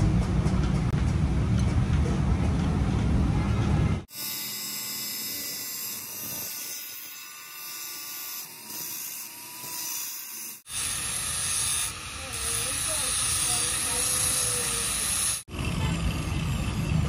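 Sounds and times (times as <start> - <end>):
rotary tool grinding metal: 4.1 - 17.0.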